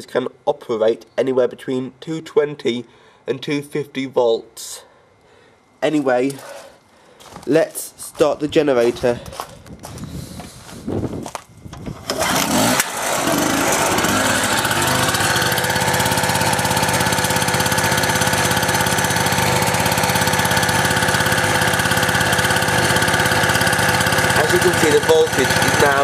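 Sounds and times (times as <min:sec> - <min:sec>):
two-stroke generator running: 0:08.8 - 0:26.0.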